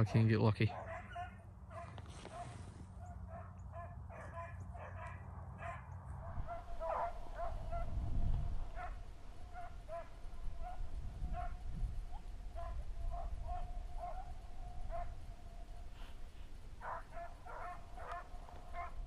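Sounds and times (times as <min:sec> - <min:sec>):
dogs baying in the distance: 0:00.6 - 0:19.0
low rumble: 0:06.2 - 0:13.5.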